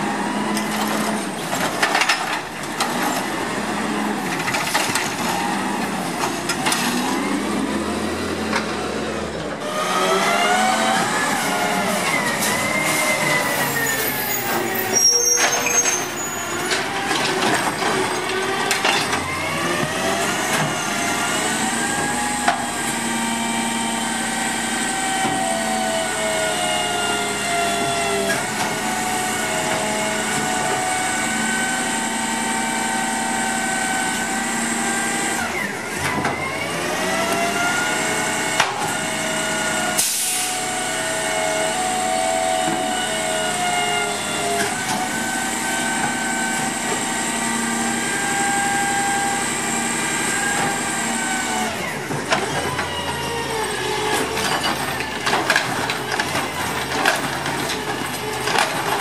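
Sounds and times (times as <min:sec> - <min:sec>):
garbage truck engine: 0:00.0 - 0:59.0
air brake hiss: 0:40.0 - 0:40.6.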